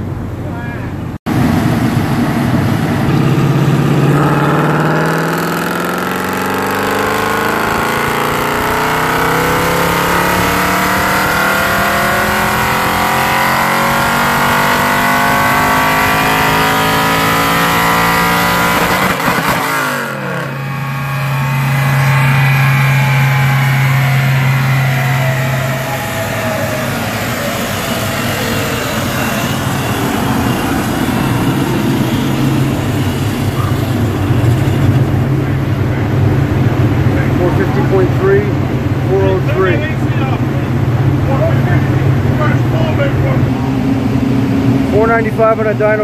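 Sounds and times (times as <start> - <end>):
exhaust crackles: 0.0 - 46.0
car engine revving on dyno: 1.2 - 46.0.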